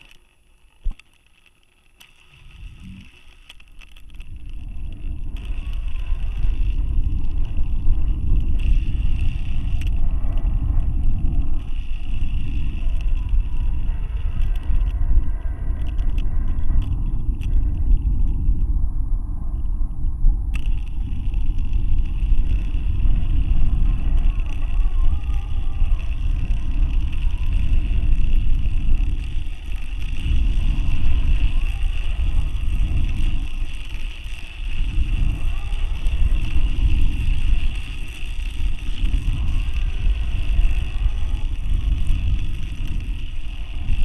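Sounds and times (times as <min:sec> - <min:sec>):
high hiss: 0:02.0 - 0:03.6
wind rumble on microphone: 0:02.2 - 0:44.0.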